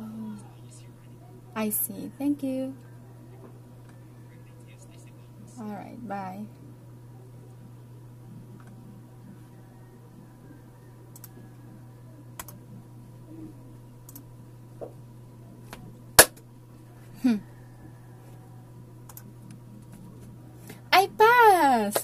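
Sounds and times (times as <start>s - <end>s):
low electrical hum: 0.0s - 22.0s
faint clicks: 11.1s - 11.4s, 19.1s - 20.0s
loud sharp click: 16.2s - 16.4s.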